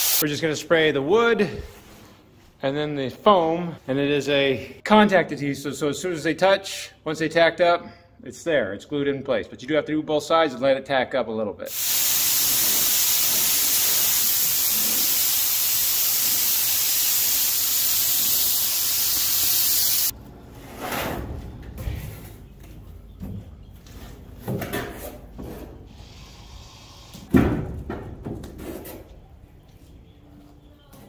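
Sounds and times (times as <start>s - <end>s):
spray gun hissing: 0.0s - 0.2s, 11.7s - 20.1s.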